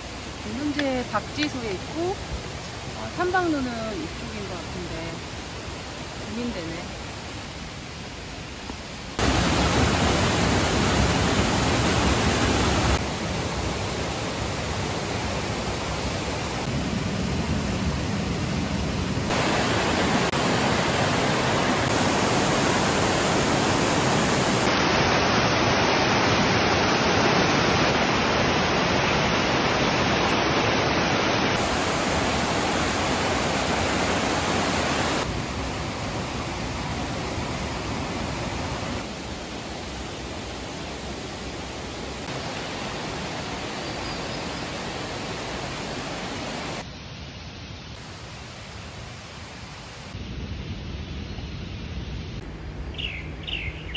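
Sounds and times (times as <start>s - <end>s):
stream rushing over boulders: 0.0s - 50.2s.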